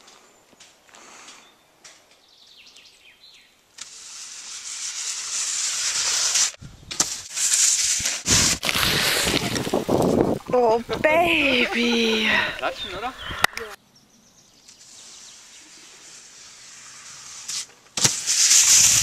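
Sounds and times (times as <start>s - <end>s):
skis hissing down track: 3.7s - 10.2s, 14.7s - 19.0s
rough gusty noise: 6.5s - 13.8s.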